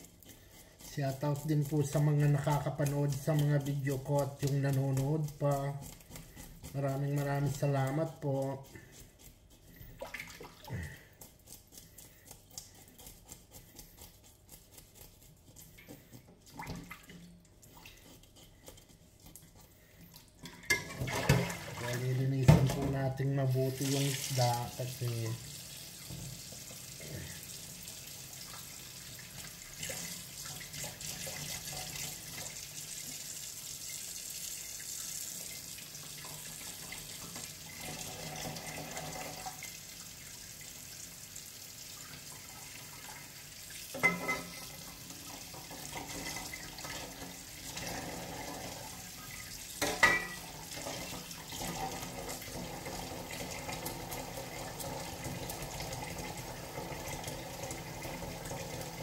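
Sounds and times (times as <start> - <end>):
tap running into a sink: 20.4 - 23.0, 26.0 - 26.8.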